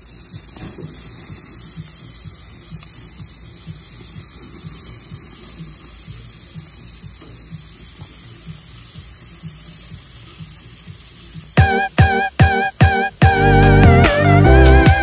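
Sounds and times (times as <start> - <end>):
meat sizzling on a grill: 0.0 - 11.6.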